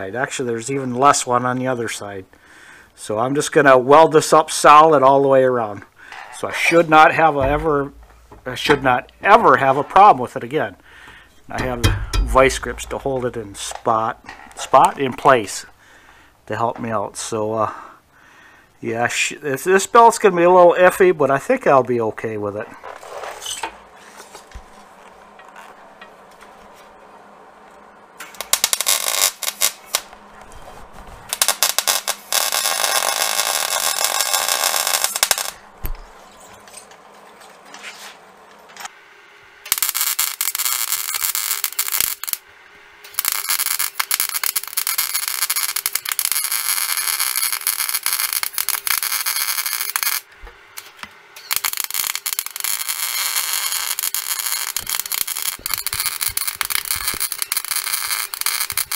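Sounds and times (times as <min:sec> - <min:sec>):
welding arc crackling: 0:07.1 - 0:09.2, 0:11.5 - 0:13.9, 0:28.2 - 0:30.6, 0:31.2 - 0:35.6, 0:39.7 - 0:58.9.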